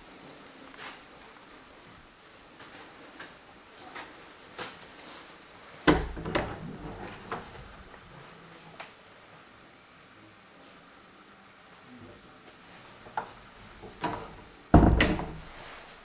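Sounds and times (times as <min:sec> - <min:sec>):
knocks on wooden door: 0:14.8 - 0:15.5.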